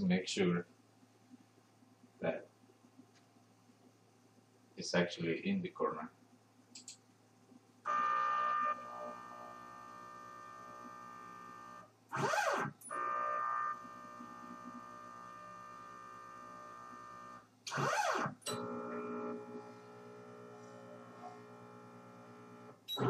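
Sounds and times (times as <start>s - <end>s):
stepper motors whining: 7.9s - 19.5s.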